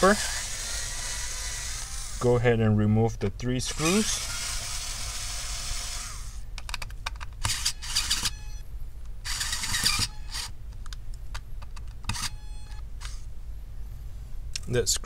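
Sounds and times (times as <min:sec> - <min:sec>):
electric screwdriver whirring: 0:00.0 - 0:02.2, 0:03.7 - 0:06.4, 0:07.4 - 0:08.6, 0:09.3 - 0:10.5, 0:12.1 - 0:13.2.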